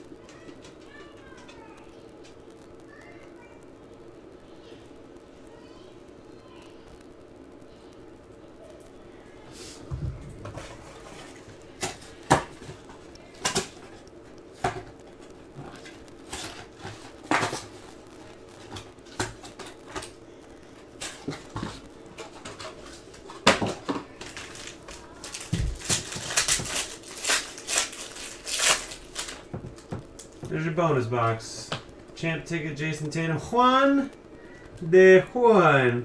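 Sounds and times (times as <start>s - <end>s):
foil pack crinkling and tearing: 10.5s - 30.6s.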